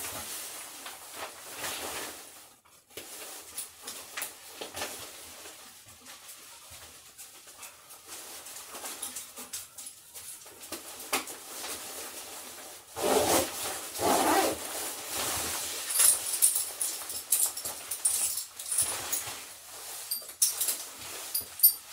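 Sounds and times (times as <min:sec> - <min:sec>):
faint clicks and shuffling: 0:00.0 - 0:12.9.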